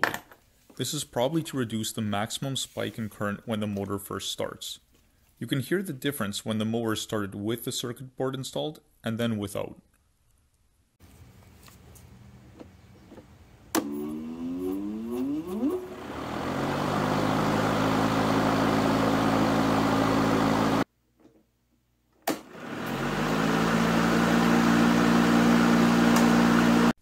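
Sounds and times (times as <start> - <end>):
lawnmower motor spooling up: 13.7 - 20.9, 22.4 - 27.0.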